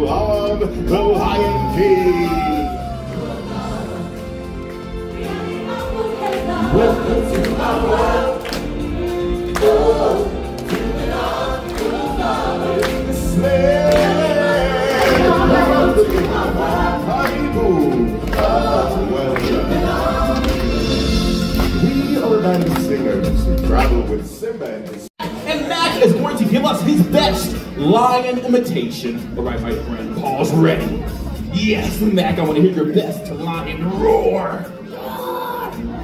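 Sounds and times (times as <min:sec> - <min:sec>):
ensemble singing: 0:00.0 - 0:24.2
accompanying music: 0:00.0 - 0:36.0.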